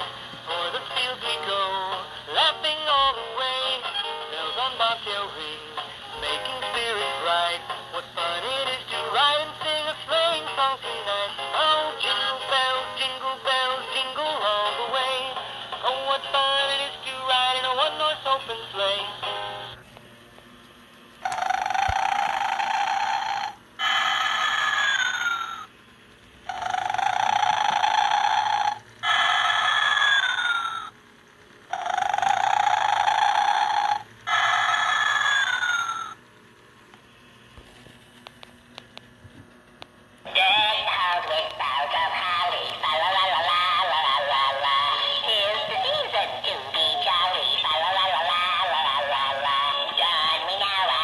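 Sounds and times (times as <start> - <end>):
toy singing in tinny electronic voice: 0.0 - 19.4, 21.2 - 25.7, 26.5 - 30.9, 31.7 - 36.2, 40.3 - 51.0
toy snoring with whistle: 21.2 - 25.7, 26.5 - 30.9, 31.7 - 36.2.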